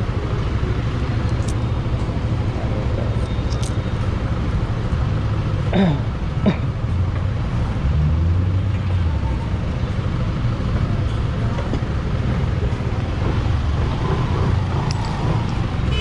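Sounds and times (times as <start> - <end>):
road and traffic noise: 0.0 - 16.0.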